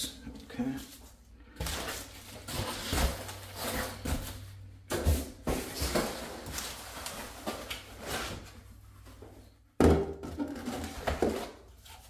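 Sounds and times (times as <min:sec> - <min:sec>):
plastic wrap rustling: 0:00.9 - 0:09.5
foam and cardboard knocking: 0:09.8 - 0:11.4.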